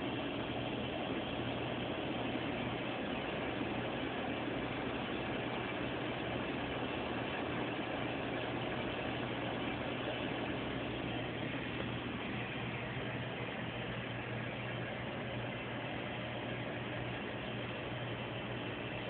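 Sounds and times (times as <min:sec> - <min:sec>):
aquarium pump humming: 0:00.0 - 0:19.0.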